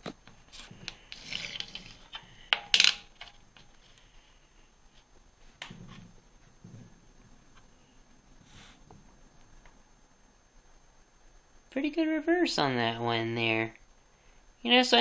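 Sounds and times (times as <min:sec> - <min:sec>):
coin sliding scrape: 0:01.0 - 0:02.1.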